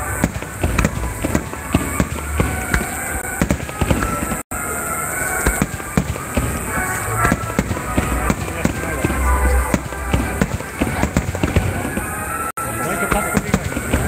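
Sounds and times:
fireworks bangs and crackles: 0:00.0 - 0:04.6, 0:05.2 - 0:14.0.

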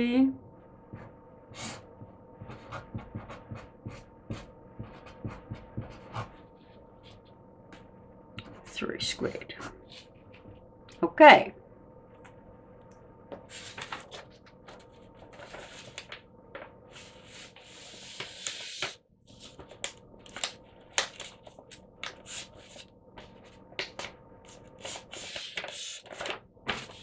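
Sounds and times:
faint steady hum: 0:00.0 - 0:27.0
pen scratching on paper: 0:01.5 - 0:06.4.

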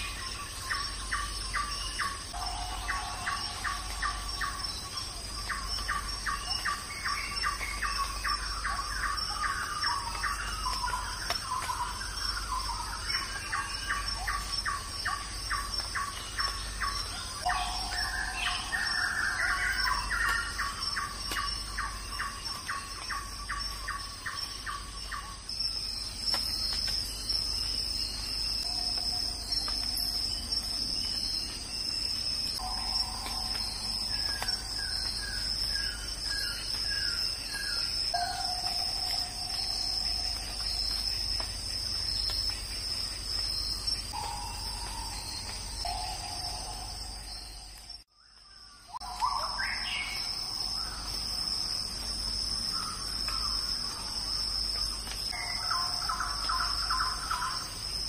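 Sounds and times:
insects trilling: 0:00.0 - 0:58.0.

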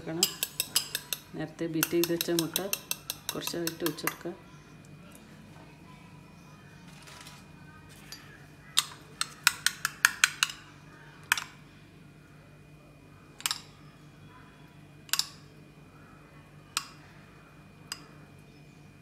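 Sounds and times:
metal spoon clinking ceramic bowl: 0:00.1 - 0:04.3, 0:13.4 - 0:13.8, 0:15.1 - 0:15.4.

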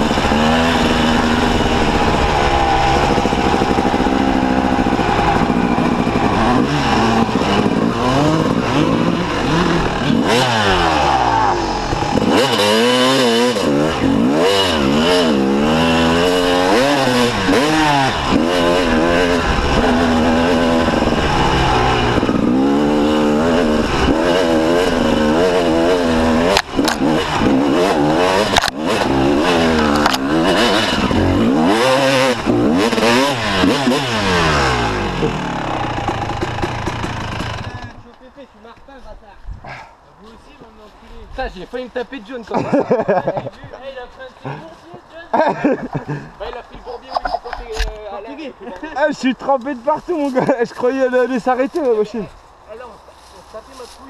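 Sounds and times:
dirt bike engine revving: 0:00.0 - 0:38.0.

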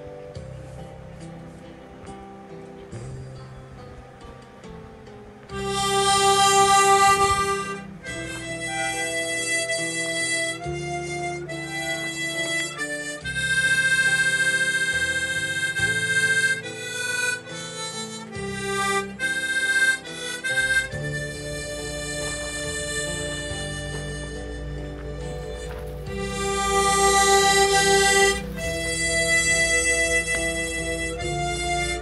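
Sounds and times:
reedy wind instrument melody: 0:00.0 - 0:32.0
sustained low chords: 0:00.0 - 0:32.0.

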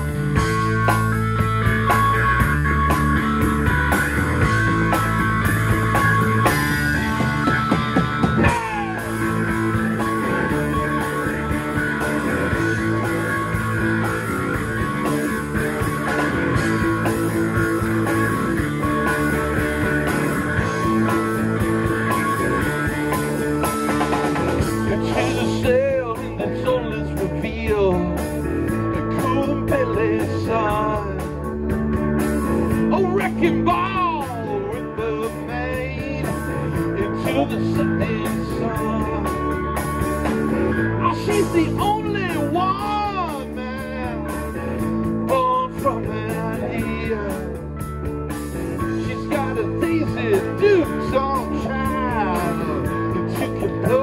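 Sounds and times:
wavering lead line: 0:00.0 - 0:26.2
rock band playing live: 0:00.0 - 0:54.0.

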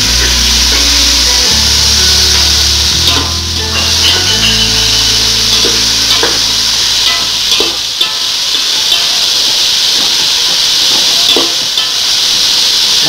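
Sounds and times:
low hum: 0:00.0 - 0:08.0
vegetables sizzling in hot oil: 0:00.0 - 0:13.0
metal spatula scraping pot: 0:02.2 - 0:08.3.

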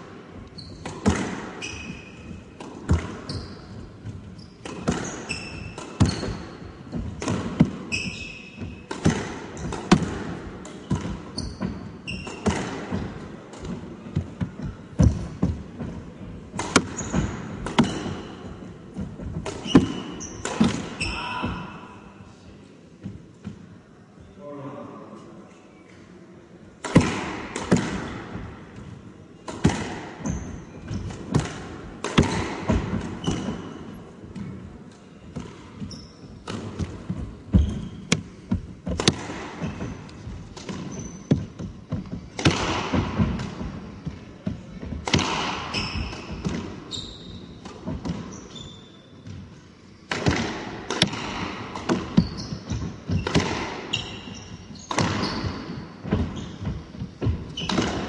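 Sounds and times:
shoes squeaking on wooden floor: 0:00.4 - 0:09.9, 0:10.7 - 0:21.8, 0:30.2 - 0:31.4, 0:32.2 - 0:34.6, 0:35.4 - 0:42.4, 0:45.6 - 0:49.4, 0:51.9 - 0:58.0
squash ball hits: 0:00.8 - 0:22.0, 0:26.8 - 0:34.7, 0:35.3 - 0:48.4, 0:50.1 - 0:58.0.

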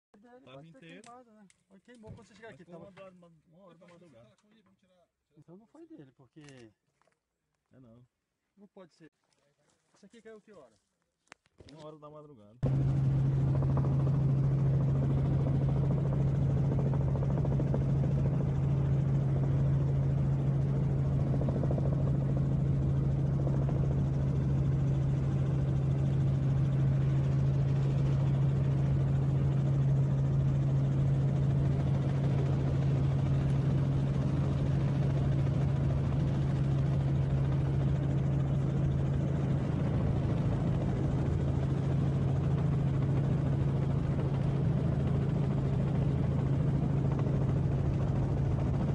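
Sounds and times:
aircraft engine drone: 0:12.6 - 0:48.9.

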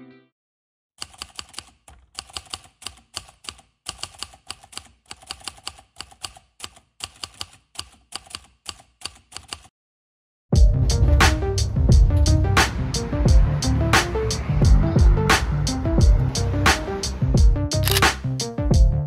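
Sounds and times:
keystroke clicks: 0:01.0 - 0:09.7, 0:17.8 - 0:18.1.

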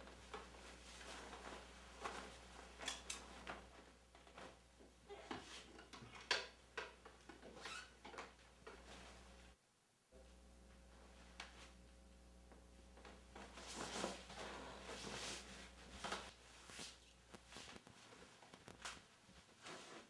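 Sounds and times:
clothing rustling: 0:00.0 - 0:05.7, 0:13.0 - 0:20.0
low room hum: 0:00.0 - 0:20.0.

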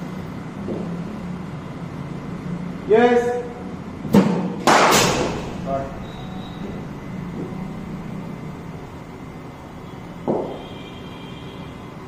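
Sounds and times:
low indoor hum: 0:00.0 - 0:12.0.

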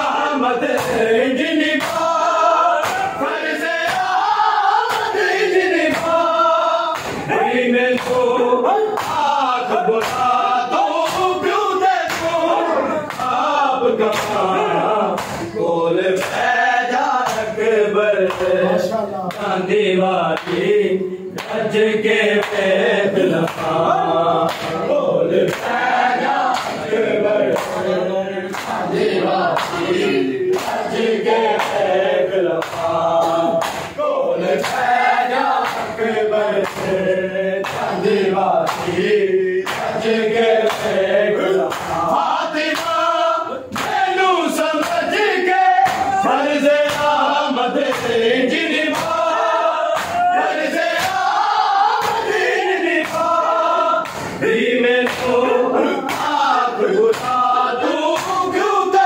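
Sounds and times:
men chanting in chorus: 0:00.0 - 0:59.0
hands slapping bare chests: 0:01.8 - 0:06.3, 0:06.9 - 0:07.3, 0:07.9 - 0:12.4, 0:13.0 - 0:14.5, 0:15.1 - 0:15.6, 0:20.4 - 0:20.7, 0:23.4 - 0:23.8, 0:24.5 - 0:24.8, 0:25.5 - 0:26.9, 0:28.5 - 0:28.9, 0:30.5 - 0:31.9, 0:32.6 - 0:34.0, 0:34.6 - 0:36.0, 0:36.6 - 0:37.0, 0:37.6 - 0:38.0, 0:38.6 - 0:40.0, 0:40.6 - 0:41.0, 0:41.6 - 0:43.0, 0:43.7 - 0:44.1, 0:45.8 - 0:46.2, 0:46.8 - 0:47.2, 0:48.8 - 0:54.4, 0:56.0 - 0:56.5, 0:57.1 - 0:57.4.

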